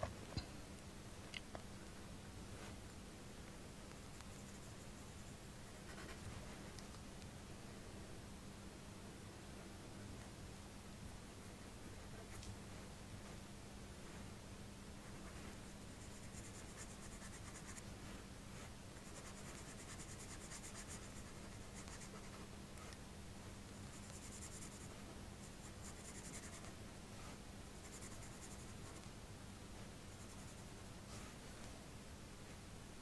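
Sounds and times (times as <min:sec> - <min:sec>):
coloured pencil scratching on paper: 0:15.2 - 0:17.8, 0:19.0 - 0:23.0, 0:23.8 - 0:26.7, 0:27.8 - 0:29.1, 0:30.1 - 0:30.8.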